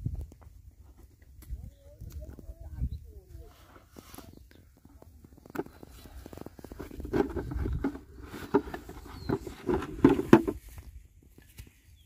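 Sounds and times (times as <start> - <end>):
plastic tub knocking and scraping: 5.4 - 10.8.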